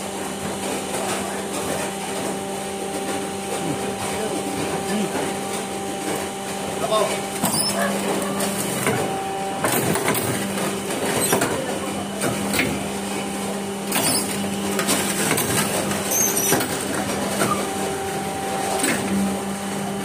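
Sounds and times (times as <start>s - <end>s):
pump motor hum: 0.0s - 20.0s.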